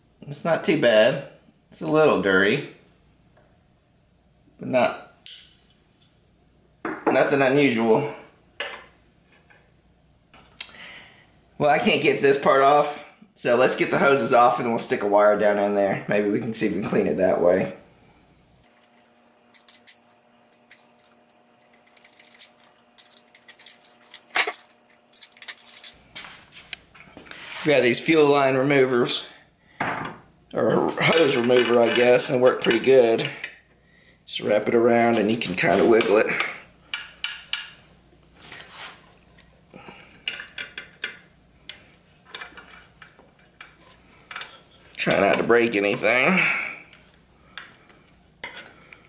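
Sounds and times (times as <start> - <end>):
metal pick clicking and scraping: 18.7 - 26.0.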